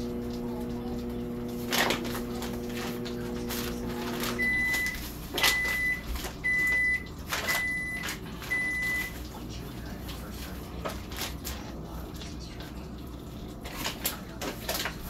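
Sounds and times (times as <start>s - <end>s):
microwave beeps: 0.0s - 9.2s
microwave oven humming: 0.0s - 15.0s
plastic bags crinkling: 1.7s - 11.8s, 13.6s - 15.0s.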